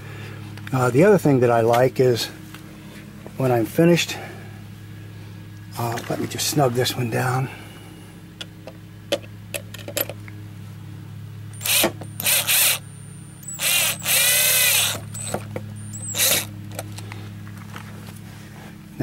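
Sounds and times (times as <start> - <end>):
power screwdriver driving screw: 11.6 - 12.8, 13.5 - 15.4, 16.0 - 16.5.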